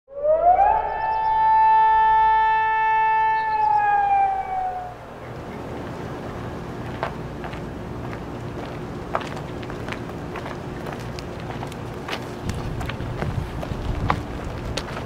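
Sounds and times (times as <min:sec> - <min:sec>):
siren-like tone sliding in pitch: 0:00.1 - 0:05.2.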